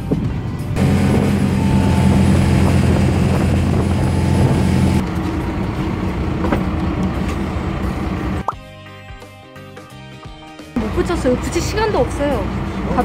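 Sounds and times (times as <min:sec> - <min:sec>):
rushing wind and water: 0:00.0 - 0:05.0
boat engine drone: 0:00.4 - 0:08.5, 0:10.8 - 0:13.0.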